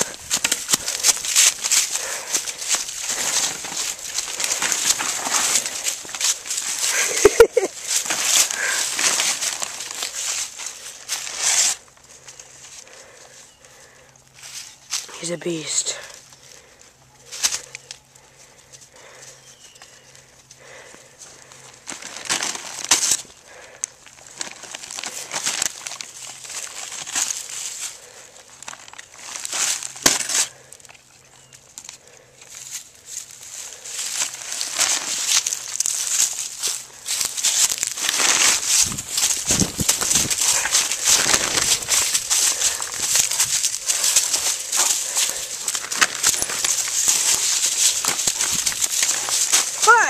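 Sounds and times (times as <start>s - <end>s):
paper sack crinkling: 0.0s - 15.3s, 20.0s - 50.0s
dry leaves crunching underfoot: 0.0s - 50.0s.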